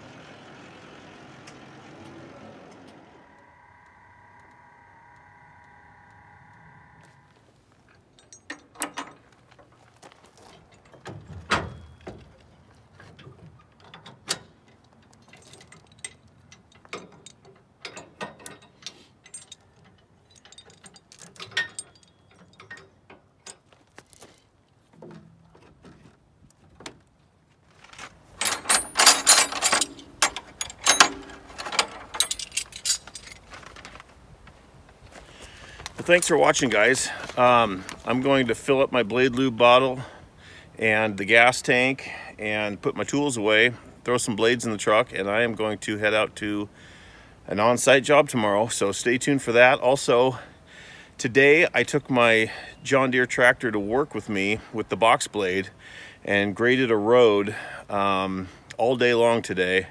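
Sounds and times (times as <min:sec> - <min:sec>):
safety chains rattling: 0:07.9 - 0:12.3, 0:13.8 - 0:23.7, 0:28.3 - 0:33.7
metal clicks clanks and rattles: 0:07.9 - 0:23.8, 0:27.8 - 0:34.0.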